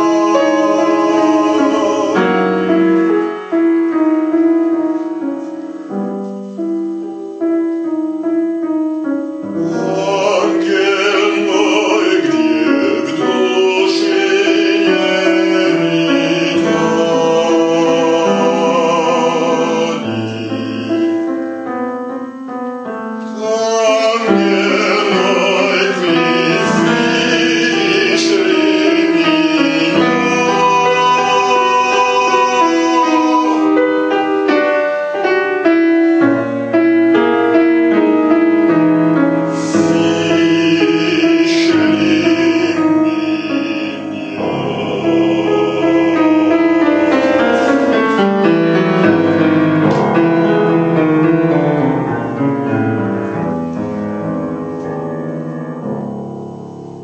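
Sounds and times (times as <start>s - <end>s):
bass-baritone voice singing: 0.0s - 3.2s, 9.5s - 21.4s, 23.2s - 34.8s, 38.0s - 53.5s
grand piano: 0.0s - 57.0s.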